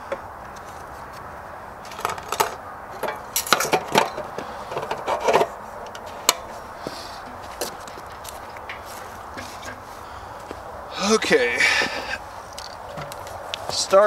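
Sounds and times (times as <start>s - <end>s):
fuel cap scraping clicks: 11.9s - 13.7s.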